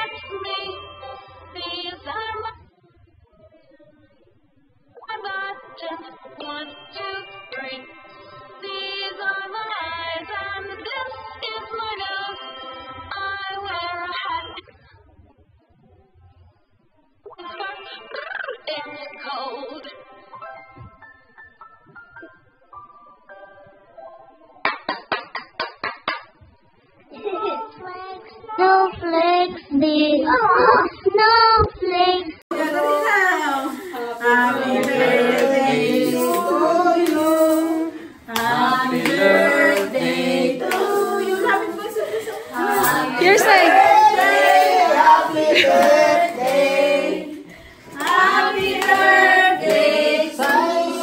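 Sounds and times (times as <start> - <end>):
group singing birthday song: 5.0 - 14.6, 32.5 - 51.0
hand claps: 24.6 - 26.4, 34.7 - 37.6, 38.3 - 39.9, 40.6 - 41.0, 48.0 - 51.0
child singing: 27.4 - 33.5.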